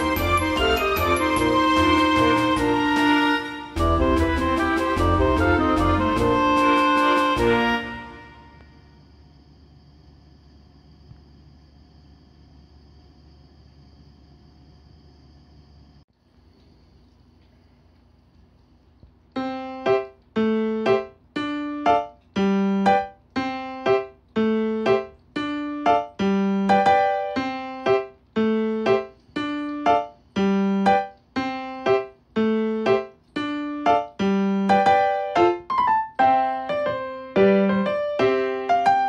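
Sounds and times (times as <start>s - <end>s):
keyboard melody: 0.0s - 8.6s, 19.4s - 39.0s.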